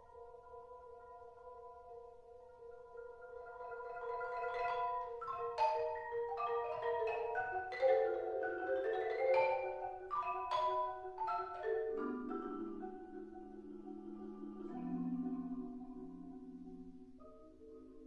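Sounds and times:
marimba duet: 0.0 - 18.0.

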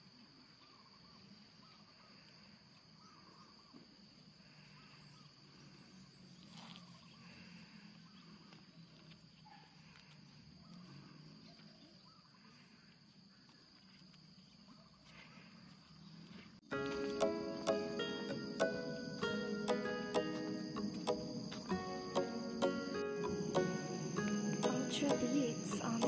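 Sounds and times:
faint bird calls: 0.5 - 13.8
high-pitched insect drone: 16.9 - 26.0.

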